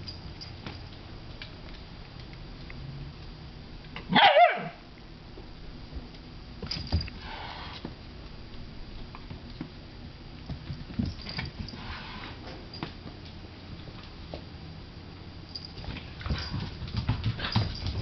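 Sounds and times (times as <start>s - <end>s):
puppy yelping bark: 4.1s - 4.8s
paws scuffling on tile floor: 15.7s - 18.0s.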